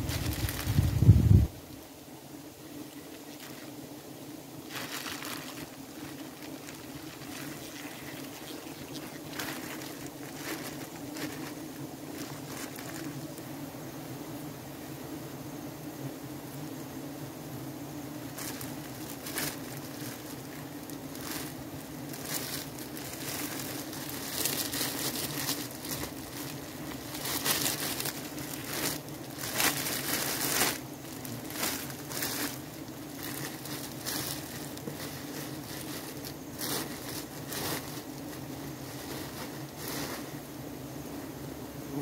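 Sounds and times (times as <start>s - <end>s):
rustling: 0.0s - 1.8s, 2.7s - 13.6s, 18.1s - 40.6s
irregular crunching: 4.6s - 13.4s, 18.3s - 40.3s.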